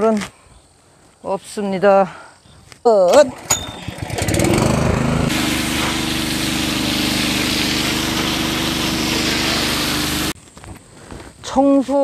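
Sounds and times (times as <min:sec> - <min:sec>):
water pump humming: 0:03.4 - 0:10.4
hose water jet hissing: 0:05.3 - 0:10.4.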